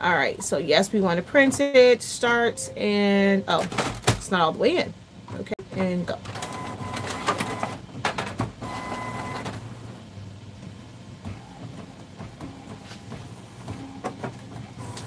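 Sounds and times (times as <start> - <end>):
printer motors whirring: 5.3 - 15.0.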